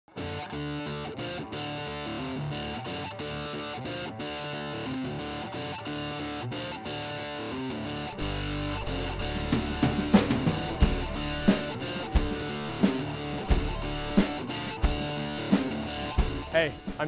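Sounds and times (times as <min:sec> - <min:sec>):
distorted electric guitar music: 0:00.1 - 0:17.0.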